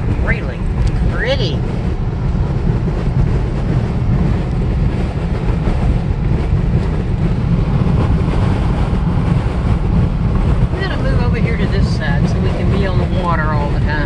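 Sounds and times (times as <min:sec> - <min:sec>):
car engine drone: 0:00.0 - 0:14.0
tyre road noise: 0:00.0 - 0:14.0
wind rushing over car: 0:00.0 - 0:14.0.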